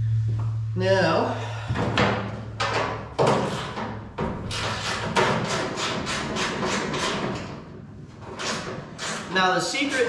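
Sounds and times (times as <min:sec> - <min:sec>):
hand tool rasping strokes: 0:04.5 - 0:07.4, 0:08.3 - 0:10.0.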